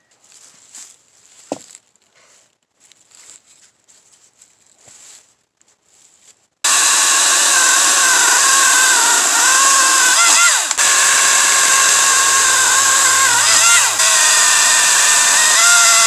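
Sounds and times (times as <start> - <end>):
leaves rustling: 0.2 - 6.5
electric chainsaw cutting log: 6.7 - 16.0.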